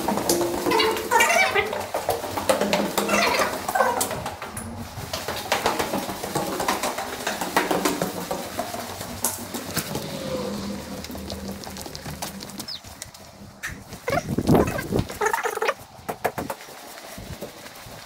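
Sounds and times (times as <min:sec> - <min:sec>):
bird calls: 0:09.5 - 0:15.8
footsteps crunching on grit and glass: 0:10.9 - 0:15.8.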